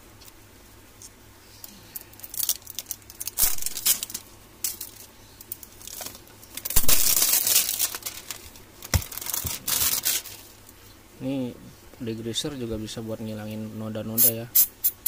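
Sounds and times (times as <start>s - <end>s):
plastic bag crinkling: 2.0s - 10.6s.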